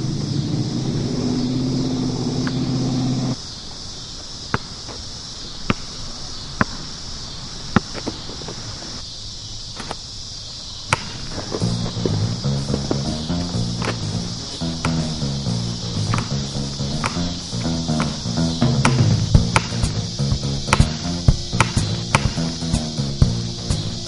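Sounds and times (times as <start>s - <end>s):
low drone: 0.0s - 3.4s, 11.6s - 24.0s
steady high hiss: 0.0s - 24.0s
basketball bouncing on asphalt: 7.7s - 8.3s, 10.9s - 15.2s, 16.1s - 22.6s.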